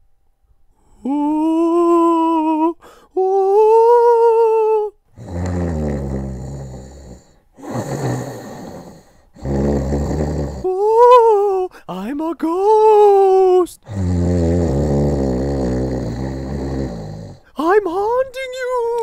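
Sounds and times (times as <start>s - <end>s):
person making ghost moans: 0.8s - 19.0s
small dog snoring: 5.2s - 10.8s, 13.8s - 17.5s.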